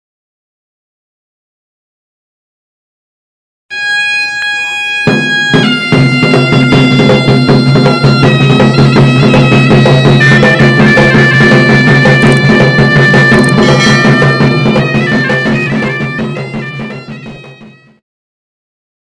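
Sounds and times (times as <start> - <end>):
melody of long held notes: 3.7 - 17.9
low drone: 9.1 - 16.6.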